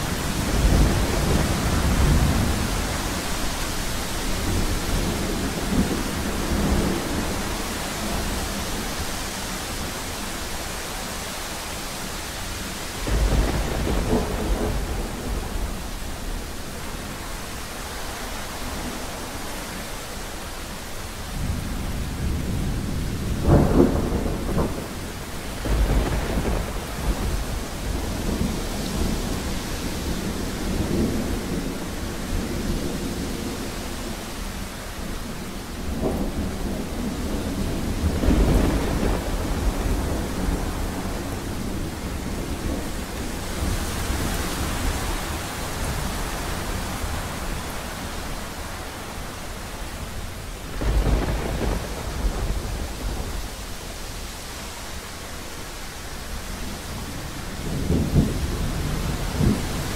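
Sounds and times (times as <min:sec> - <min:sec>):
deep rolling thunder rumbles: 0:00.0 - 0:09.2, 0:12.7 - 0:17.2, 0:21.4 - 0:54.4, 0:56.6 - 0:59.9
steady rain: 0:00.0 - 0:59.9
sharp thunder cracks: 0:13.0 - 0:15.9, 0:23.4 - 0:29.5, 0:35.9 - 0:41.2, 0:50.7 - 0:53.5.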